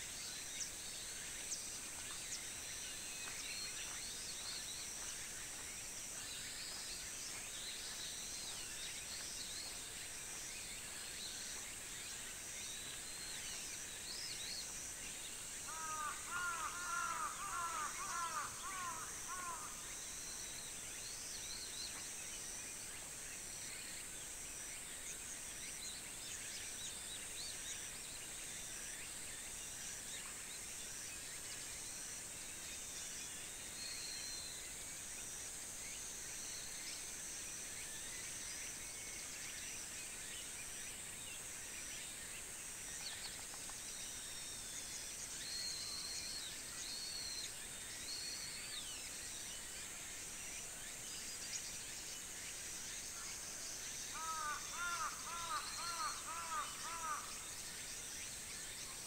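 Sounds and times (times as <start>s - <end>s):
high insect drone: 0.0s - 59.0s
pulsing insect trill: 10.4s - 21.6s, 43.9s - 59.0s.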